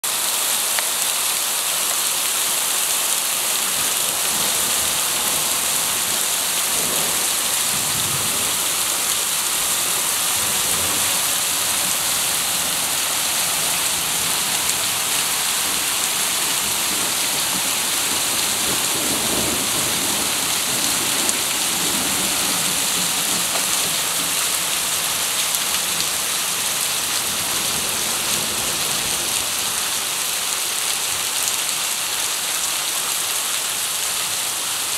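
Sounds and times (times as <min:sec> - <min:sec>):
heavy rain pouring: 0:00.0 - 0:34.9
faint rumbles of thunder: 0:06.6 - 0:09.1, 0:17.4 - 0:24.4.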